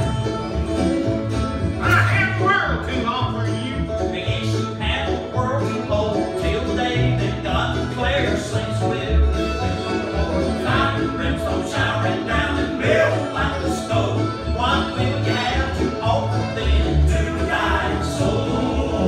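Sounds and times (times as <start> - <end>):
string accompaniment: 0.0 - 19.0
walking bass: 0.0 - 19.0
male vocal quartet singing: 4.2 - 19.0.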